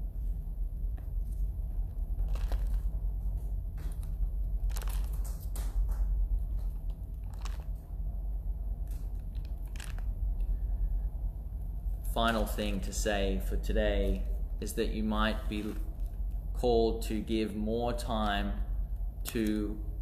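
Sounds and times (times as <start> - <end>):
low room rumble: 0.0 - 20.0
rustles and clicks: 0.9 - 7.9, 8.8 - 10.5.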